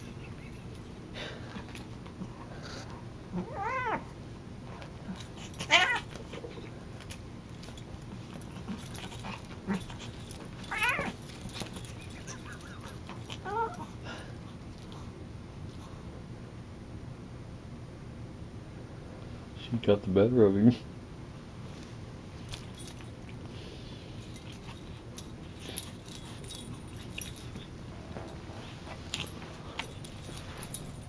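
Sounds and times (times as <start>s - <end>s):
cat yowling: 3.3s - 4.1s, 5.6s - 6.1s, 10.6s - 11.2s, 13.3s - 13.9s
cats scuffling: 4.6s - 13.8s.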